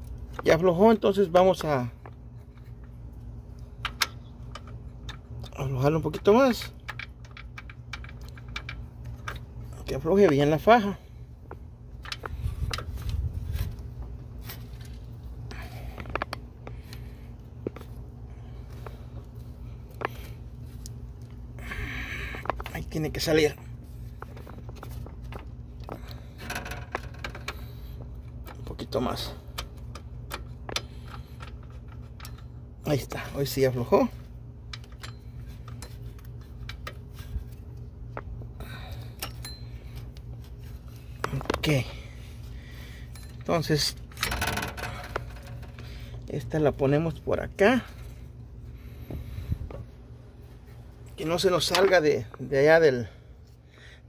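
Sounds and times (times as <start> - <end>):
tools clicking and scraping: 0.0 - 53.6
steady low hum: 0.0 - 54.0
metal tools clinking: 28.4 - 37.8, 38.6 - 46.5.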